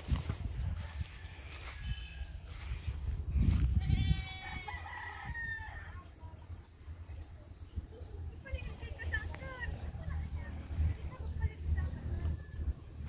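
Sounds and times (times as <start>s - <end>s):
rooster crowing: 0.8s - 2.7s, 3.8s - 6.0s.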